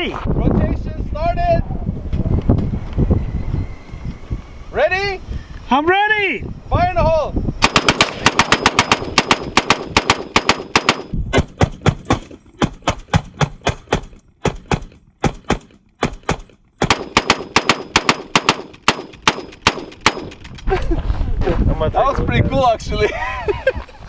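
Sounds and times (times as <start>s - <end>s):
rapid rifle fire: 7.6s - 20.4s.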